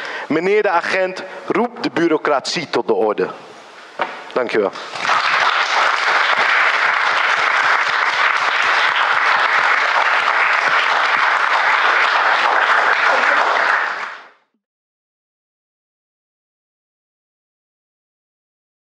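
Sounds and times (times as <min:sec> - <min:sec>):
audience applauding: 0:04.8 - 0:14.4.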